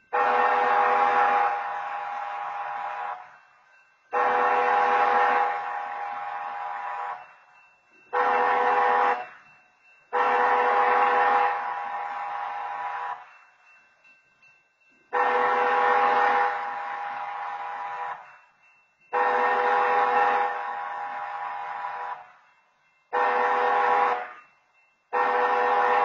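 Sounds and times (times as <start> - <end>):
train horn blasts: 0.1 - 3.4, 4.1 - 7.2, 8.1 - 9.4, 10.1 - 13.2, 15.1 - 18.2, 19.1 - 22.4, 23.1 - 24.4, 25.1 - 26.0.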